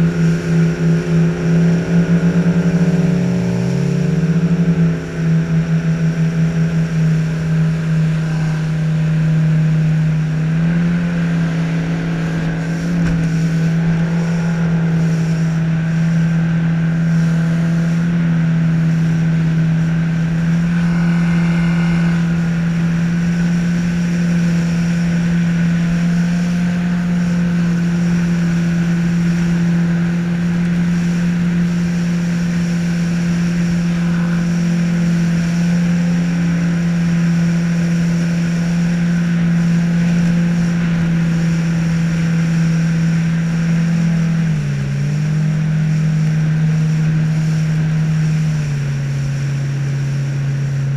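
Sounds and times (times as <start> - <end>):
outboard motor droning: 0.0 - 50.9
water rushing past hull: 0.0 - 50.9.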